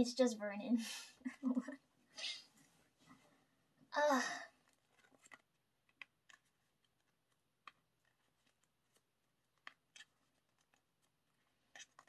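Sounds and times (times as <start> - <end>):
plastic sleeves clicking: 4.6 - 12.0.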